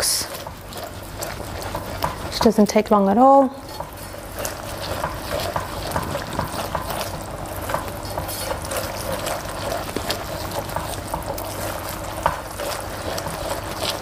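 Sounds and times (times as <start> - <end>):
gravy bubbling in a pan: 0.0 - 14.0
spatula stirring: 0.0 - 14.0.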